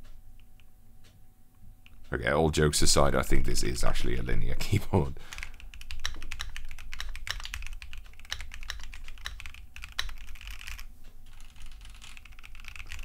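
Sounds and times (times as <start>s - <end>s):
mechanical keyboard typing: 5.3s - 13.0s.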